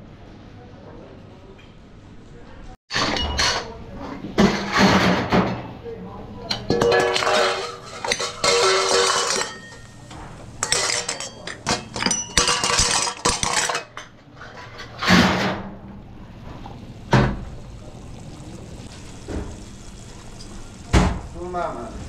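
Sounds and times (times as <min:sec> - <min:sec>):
dishes and utensils clattering: 0:02.9 - 0:05.7, 0:06.4 - 0:15.8.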